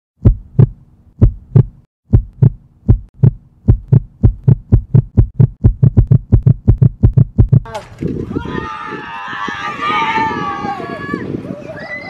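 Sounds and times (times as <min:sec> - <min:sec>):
heartbeat thumps: 0:00.2 - 0:07.7.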